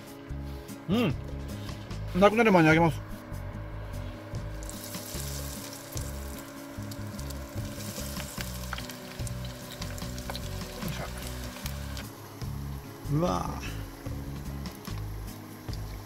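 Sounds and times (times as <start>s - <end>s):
fish deep-frying in oil: 4.5s - 12.1s, 14.6s - 16.0s.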